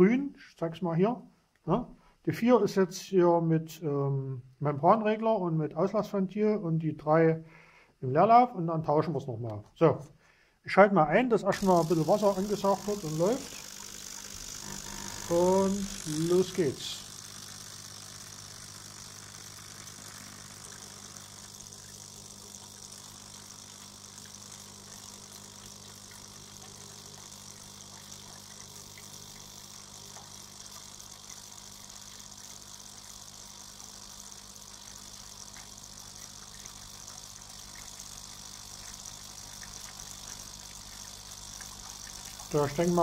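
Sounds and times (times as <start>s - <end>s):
water pump humming: 11.5s - 43.0s.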